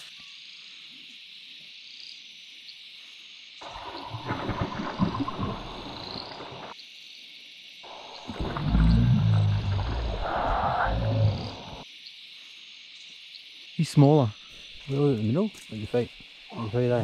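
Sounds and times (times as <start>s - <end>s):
cicada chorus drone: 0.0s - 17.0s
fish splashing at water surface: 3.6s - 6.7s.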